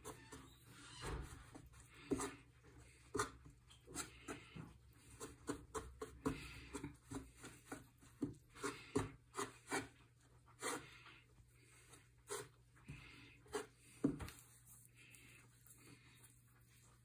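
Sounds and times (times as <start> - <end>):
fork scraping and tapping on wood: 3.0 - 10.0.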